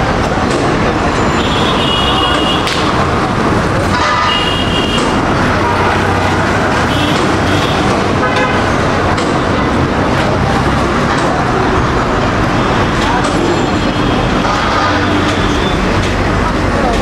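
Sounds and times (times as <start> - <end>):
road traffic noise: 0.0 - 17.0
vehicle horn toots: 1.3 - 2.7, 3.8 - 8.7.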